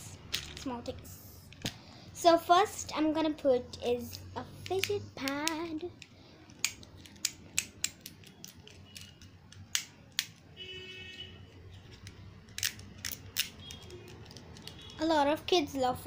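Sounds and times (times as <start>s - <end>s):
plastic fidget pad clicking: 4.6s - 10.4s, 11.8s - 15.1s.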